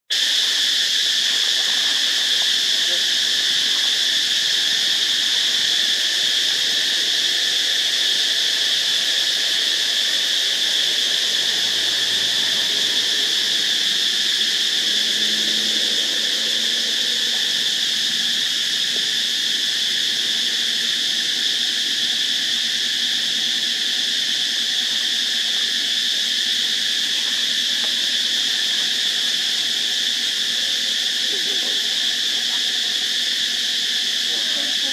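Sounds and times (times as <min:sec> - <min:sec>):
insects buzzing: 0:00.1 - 0:34.9.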